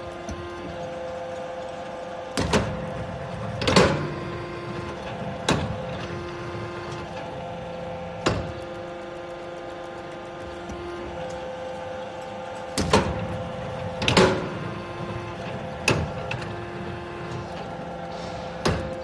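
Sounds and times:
hydraulic unit hum: 0.0s - 19.0s
sharp clanks of press: 17.2s - 19.0s.

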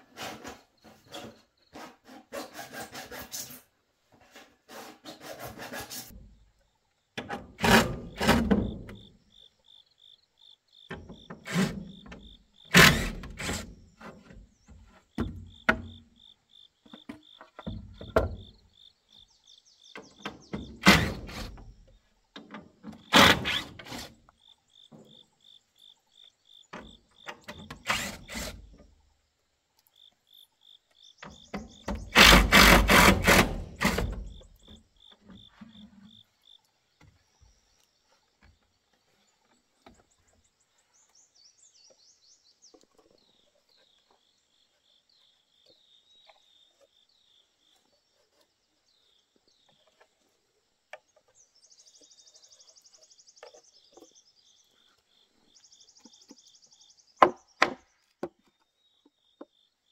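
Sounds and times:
birds chirping faintly: 8.5s - 33.0s, 33.8s - 59.9s
cordless drill driving screws: 27.8s - 28.6s, 32.1s - 34.1s.

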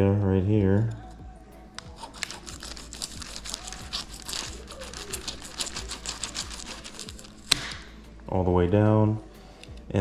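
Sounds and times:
knife crunching through fish scales: 1.8s - 7.9s.

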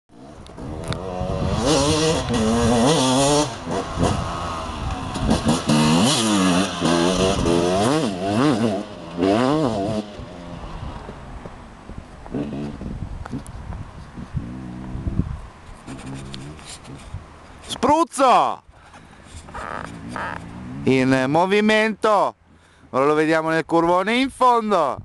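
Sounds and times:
dirt bike engine revving past: 0.2s - 11.2s, 12.3s - 12.9s, 14.3s - 15.2s, 19.5s - 21.1s.

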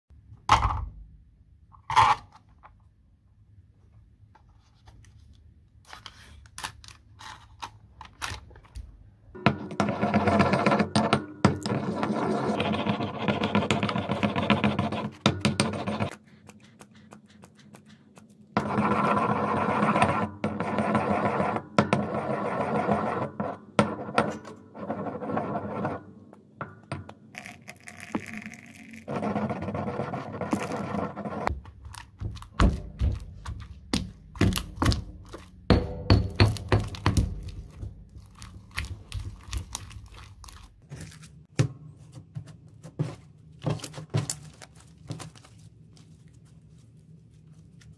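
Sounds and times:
stone pestle scraping in mortar: 9.5s - 16.2s, 18.6s - 26.0s, 28.0s - 31.6s
foil seal crinkling and tearing: 38.2s - 41.4s.

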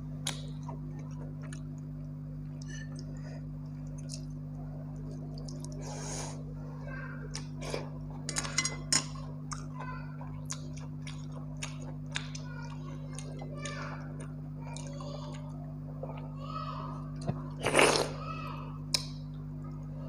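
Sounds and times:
low electrical hum: 0.0s - 20.0s
wet chewing and smacking: 0.2s - 5.8s, 9.4s - 16.3s.

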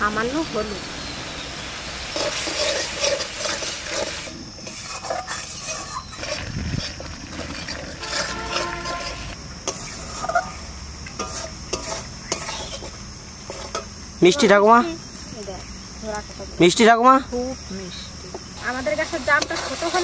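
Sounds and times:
paste frying: 0.0s - 15.8s, 18.4s - 20.0s
spatula scraping a metal pan: 2.1s - 10.6s, 11.2s - 13.9s, 19.3s - 20.0s.

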